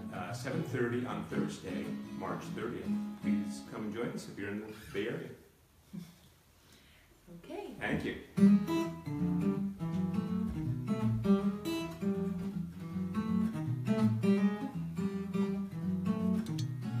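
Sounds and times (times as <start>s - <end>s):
acoustic guitar playing: 0.0s - 4.8s, 8.3s - 17.0s.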